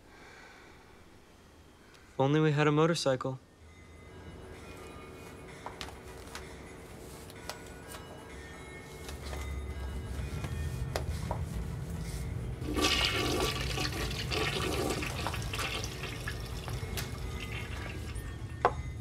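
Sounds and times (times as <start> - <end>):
toilet flushing: 12.6 - 18.6.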